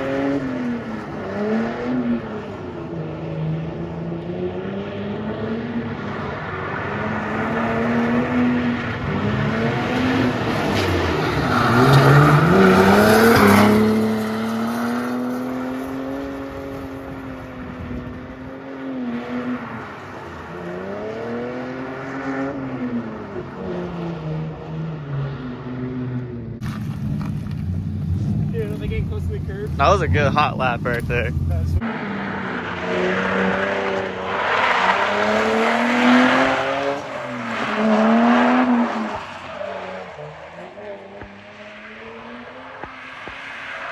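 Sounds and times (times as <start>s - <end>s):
car engine revving hard: 6.5s - 19.8s, 29.8s - 43.0s.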